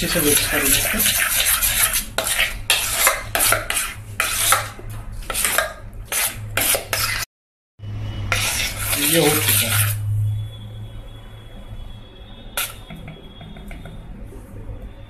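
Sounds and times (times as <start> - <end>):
batter beaten in a steel bowl: 0.0 - 7.2.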